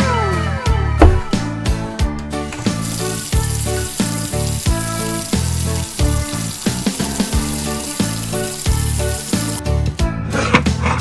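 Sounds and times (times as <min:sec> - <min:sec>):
tap water running into sink: 0:02.4 - 0:09.6.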